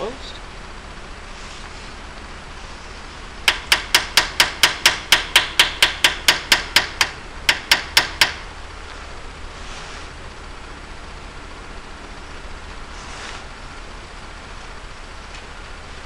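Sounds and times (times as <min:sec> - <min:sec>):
hammer tapping on metal: 0:03.5 - 0:08.5.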